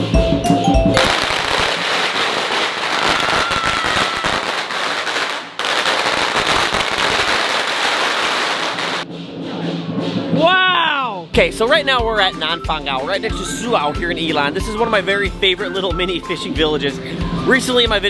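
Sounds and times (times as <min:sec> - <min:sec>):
firecrackers crackling: 0:01.0 - 0:09.1.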